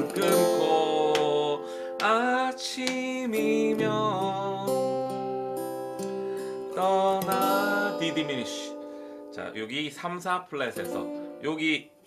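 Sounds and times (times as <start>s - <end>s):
man singing: 0.0s - 5.4s, 6.6s - 8.8s
acoustic guitar chords: 0.0s - 12.0s.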